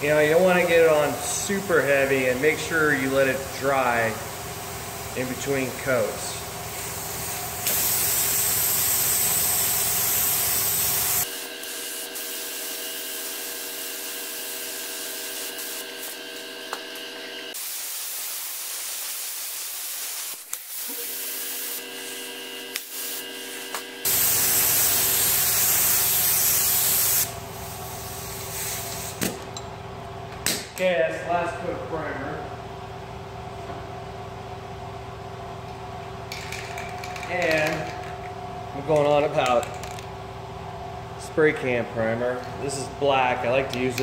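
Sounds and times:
paint spray gun hissing: 0.6s - 16.5s, 17.5s - 29.3s.

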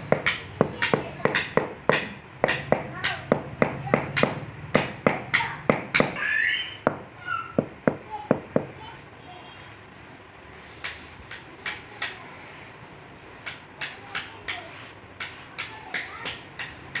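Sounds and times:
hand sweeping grit on stone: 8.5s - 17.0s.

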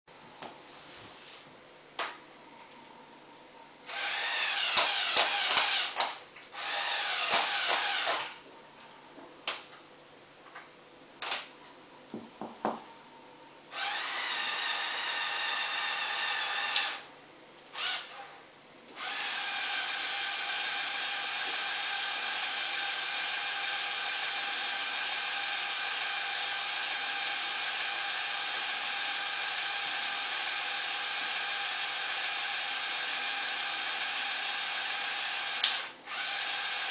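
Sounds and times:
small electric motors whining: 6.6s - 8.4s, 19.0s - 36.9s.

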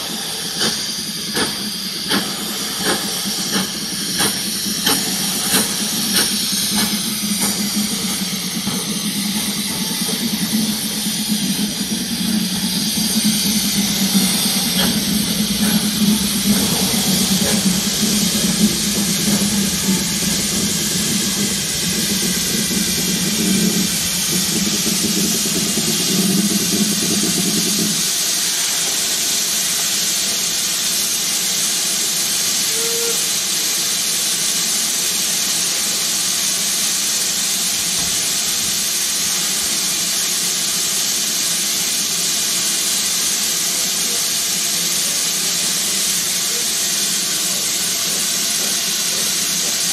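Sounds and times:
locomotive rumbling: 0.0s - 29.3s
steam hissing from locomotive: 0.0s - 49.9s.

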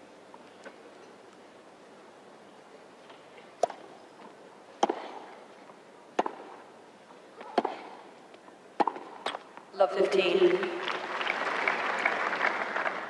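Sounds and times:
tennis ball hits: 3.6s - 3.9s, 4.8s - 5.3s, 6.1s - 6.6s, 7.4s - 8.0s, 8.8s - 9.5s.

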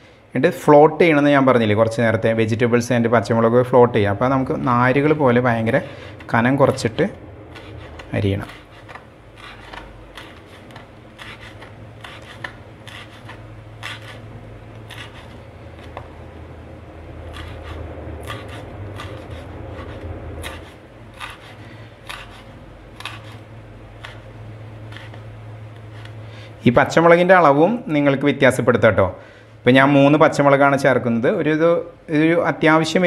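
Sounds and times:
blade scraping the board: 7.5s - 16.1s, 17.2s - 24.2s, 24.9s - 26.2s
knife slicing on wooden board: 7.5s - 16.1s, 17.3s - 24.2s, 24.9s - 26.2s.

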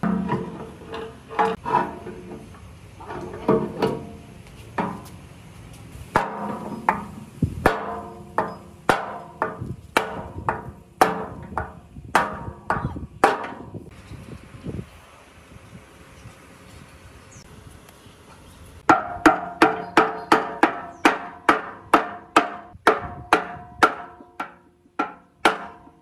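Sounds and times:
hammer striking metal: 6.2s - 13.6s.

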